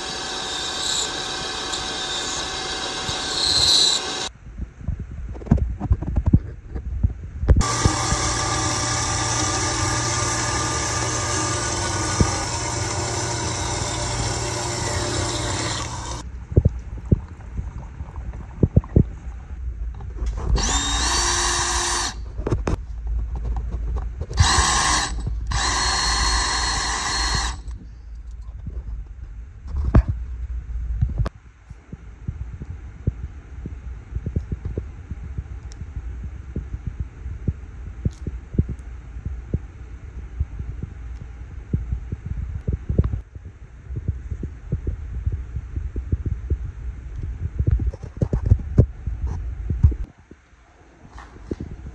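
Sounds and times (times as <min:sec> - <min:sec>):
band saw cutting metal rod: 0:00.0 - 0:04.3, 0:07.6 - 0:16.2, 0:24.4 - 0:27.7
low hum: 0:04.0 - 0:51.9
machine motor whining: 0:07.6 - 0:16.2, 0:20.6 - 0:22.2, 0:24.4 - 0:27.8.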